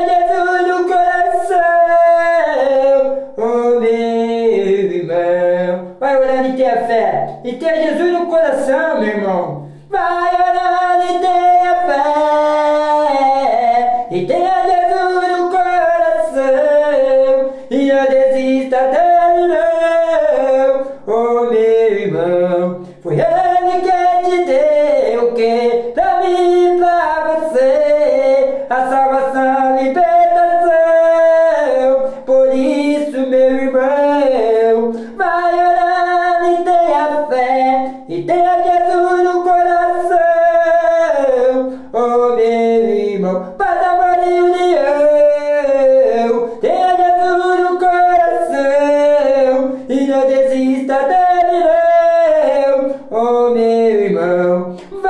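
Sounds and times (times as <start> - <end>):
man singing unaccompanied: 0.0 - 55.0
breaths between phrases: 9.6 - 9.9.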